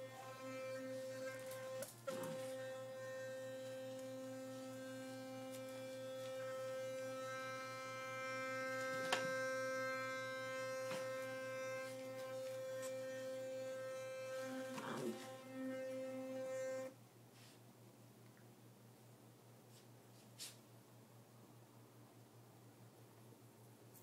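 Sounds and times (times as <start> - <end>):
electric toothbrush humming: 0.0 - 17.0.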